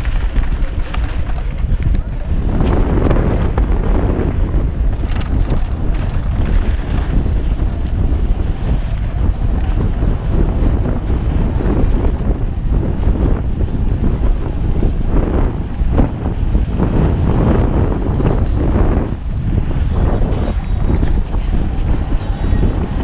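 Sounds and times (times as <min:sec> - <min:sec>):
small clicks and rattles: 0:00.0 - 0:03.7, 0:04.9 - 0:07.1
bike tyres rumbling on dirt: 0:00.0 - 0:23.0
wind buffeting microphone: 0:00.0 - 0:23.0.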